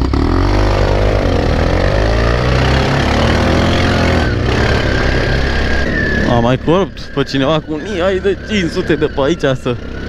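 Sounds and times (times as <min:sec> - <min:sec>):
atv engine revving: 0:00.0 - 0:10.0.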